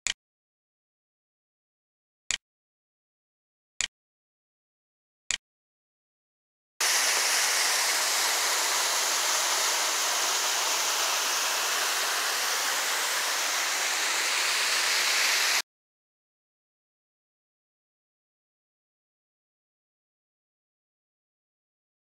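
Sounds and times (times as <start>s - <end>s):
waterfall splashing into pool: 6.8s - 15.6s.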